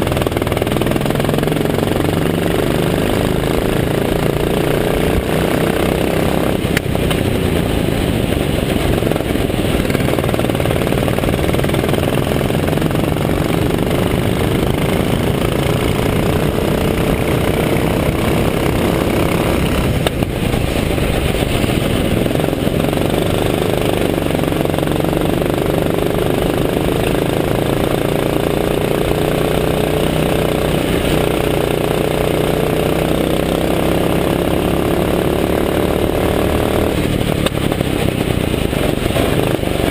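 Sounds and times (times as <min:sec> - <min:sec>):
go-kart engine running hard: 0:00.0 - 0:39.9
wind rushing on microphone: 0:05.1 - 0:24.5.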